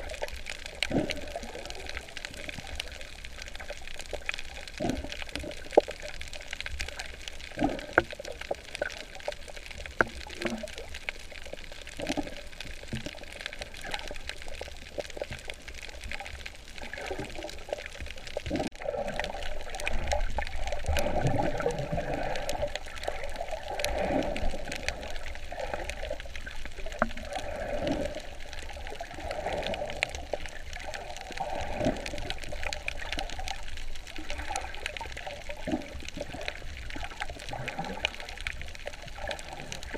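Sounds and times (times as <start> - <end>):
water sloshing and gurgling: 0.0 - 39.9
small clicks: 0.1 - 18.6.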